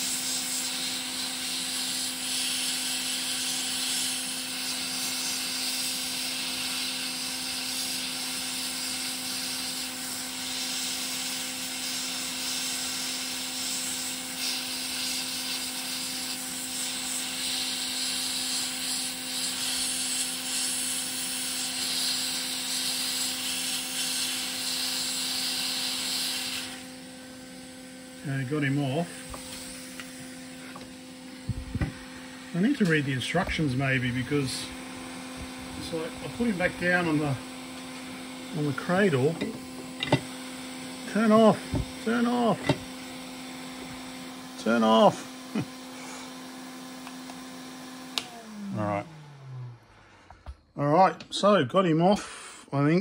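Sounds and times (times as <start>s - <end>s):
hot air hissing: 0.0s - 49.0s, 52.1s - 52.8s
steady low hum: 27.5s - 46.2s.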